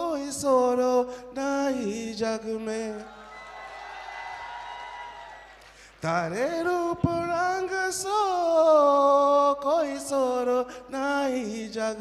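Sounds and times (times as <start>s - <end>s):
man singing folk song: 0.0s - 3.1s, 6.0s - 12.0s.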